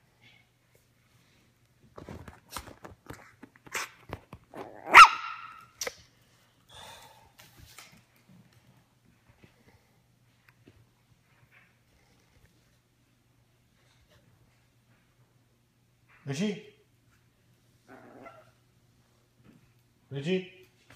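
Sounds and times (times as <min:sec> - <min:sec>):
puppy barking: 0:04.8 - 0:05.7.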